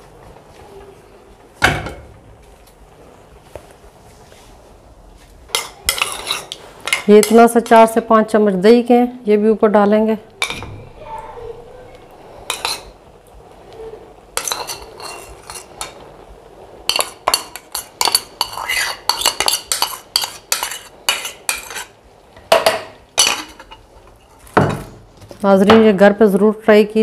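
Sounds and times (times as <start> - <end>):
spoon scraping a pot: 5.5 - 8.0, 12.5 - 13.0, 14.4 - 16.0, 16.9 - 22.0.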